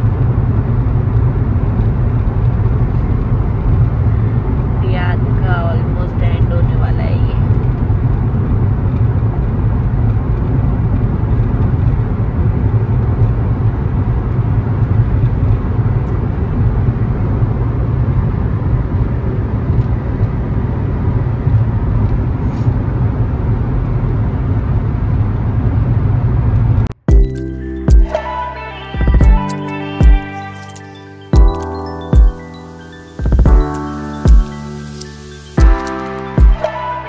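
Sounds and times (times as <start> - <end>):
car cabin road and engine rumble: 0.0 - 27.5.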